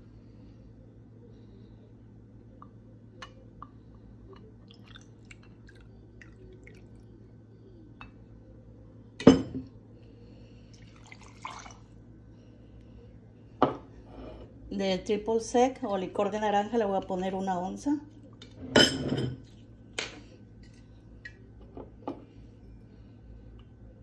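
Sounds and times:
liquid poured into metal jigger: 10.8 - 12.0.

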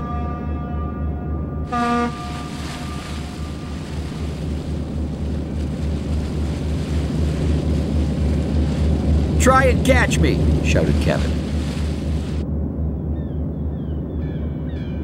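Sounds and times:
ship's whistle: 0.0 - 4.3
ship's engine throbbing: 0.0 - 15.0
water washing: 1.7 - 12.4.

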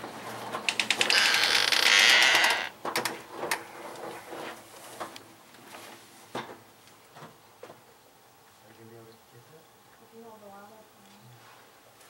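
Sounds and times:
storm door rattling hiss: 0.7 - 3.1.

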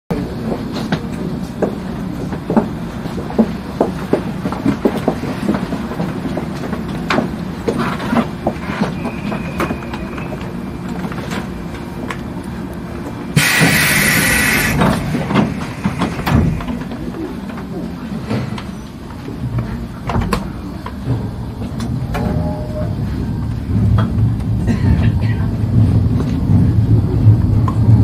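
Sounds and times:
train low hum: 0.1 - 28.0
compressed air hiss: 13.4 - 16.8.

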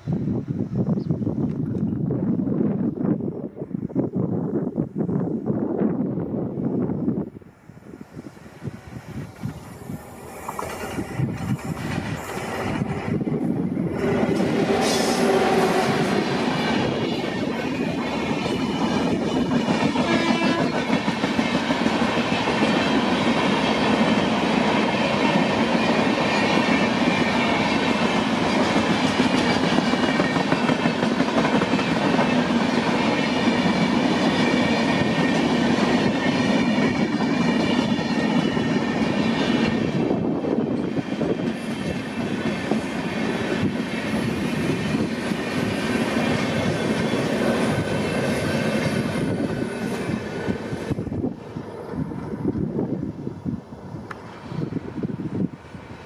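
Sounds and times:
train wheels clattering over rail joints: 9.3 - 51.1.

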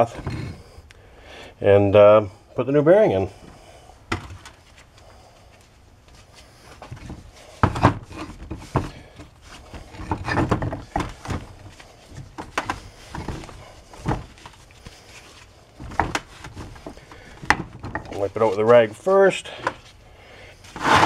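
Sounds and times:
wooden blocks moved on bench: 6.7 - 19.9, 20.6 - 21.0
rag rubbing metal: 20.8 - 21.0.

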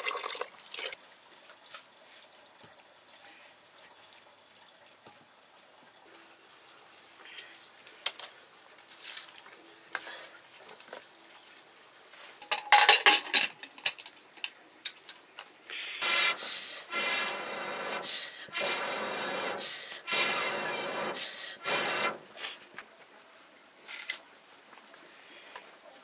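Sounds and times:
metal pot and firewood clinking: 12.4 - 15.6
blowing through metal pipe: 16.0 - 22.5.

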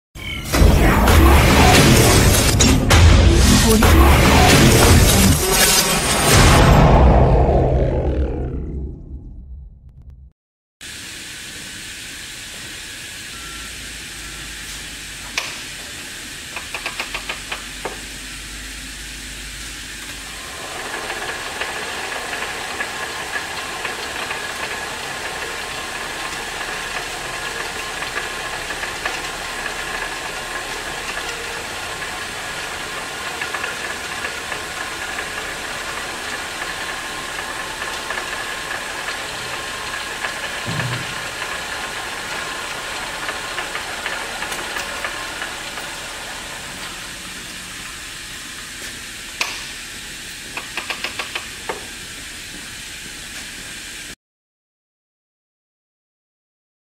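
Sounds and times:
band saw whirring: 19.6 - 49.8.

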